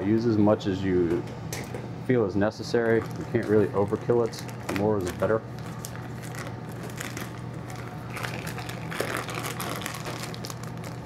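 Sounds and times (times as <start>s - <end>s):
fan humming: 0.0s - 11.0s
plastic bag crinkling: 2.8s - 11.0s.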